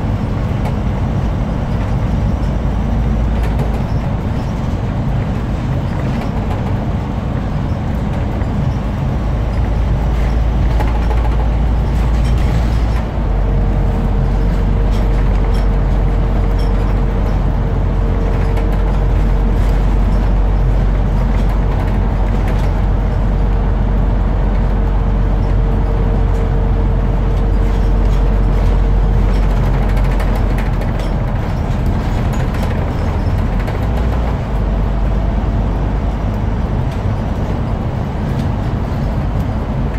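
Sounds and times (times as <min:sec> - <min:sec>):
bus diesel engine drone: 0:00.0 - 0:39.9
road rumble: 0:00.0 - 0:39.9.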